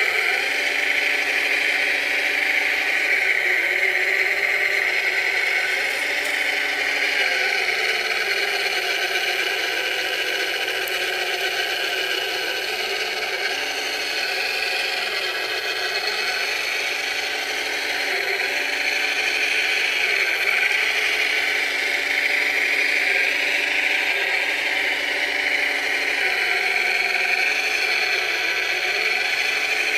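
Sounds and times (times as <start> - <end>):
high motor whine: 0.0 - 29.9
model loader motors whirring: 0.0 - 29.9.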